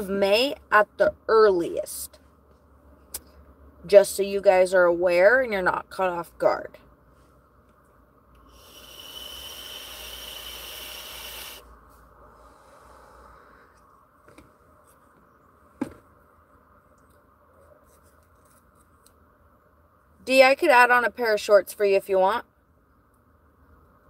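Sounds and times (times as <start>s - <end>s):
breathy hiss of air: 8.4s - 13.9s
person breathing out: 8.5s - 11.6s, 12.3s - 13.8s.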